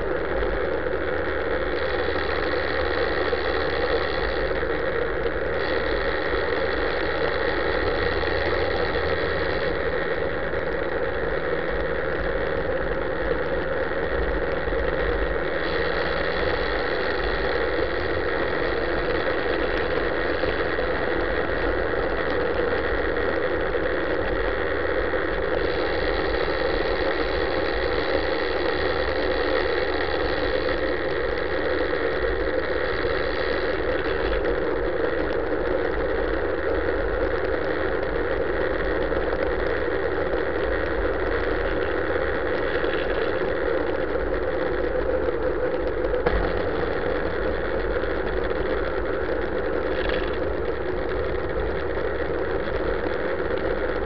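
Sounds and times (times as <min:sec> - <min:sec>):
motorcycle engine at low revs: 0:45.7 - 0:51.9.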